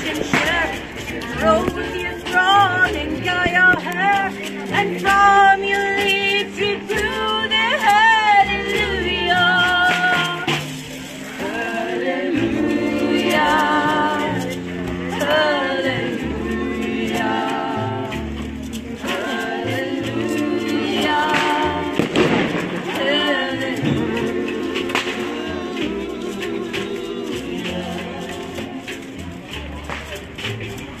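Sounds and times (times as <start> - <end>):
plucked double bass: 0.0 - 31.0
voices singing with vibrato: 0.0 - 31.0
drum kit: 20.8 - 31.0.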